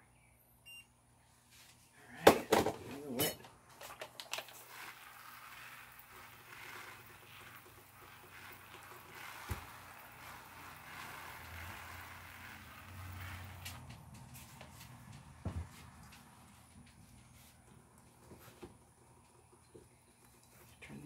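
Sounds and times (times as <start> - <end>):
sprayer hissing: 4.6 - 13.9.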